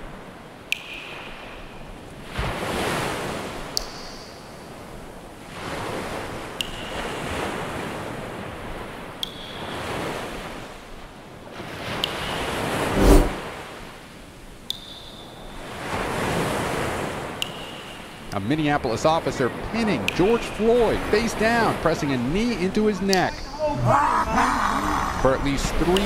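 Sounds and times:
ocean waves breaking: 0.0 - 14.7, 15.3 - 26.0.

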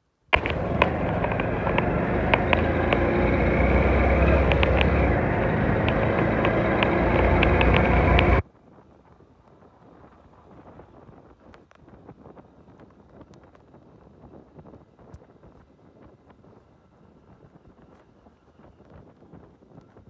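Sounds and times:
motorcycle engine running: 0.3 - 8.4
sharp clicks: 0.3 - 8.4.

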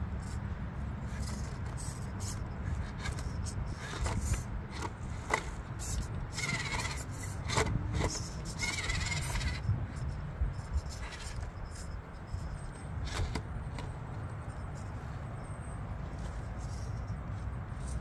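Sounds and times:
tyres scraping on stone: 1.0 - 9.7, 10.6 - 14.0.

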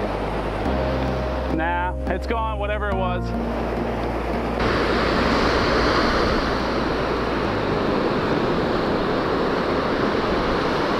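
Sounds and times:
ocean surf washing onto beach: 0.0 - 10.9
wind on microphone: 3.5 - 10.9.

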